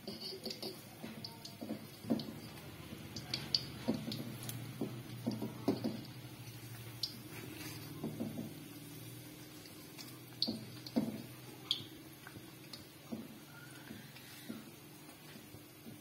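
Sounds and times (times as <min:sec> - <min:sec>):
fork tapping and scraping wok: 0:00.0 - 0:08.6, 0:09.6 - 0:11.9
oil bubbling in a wok: 0:00.0 - 0:16.0.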